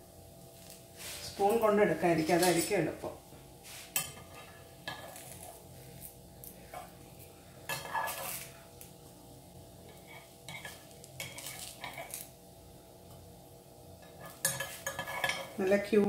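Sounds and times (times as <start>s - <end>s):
metal spoon scraping in pan: 3.6s - 8.7s, 9.8s - 12.4s, 14.0s - 15.7s.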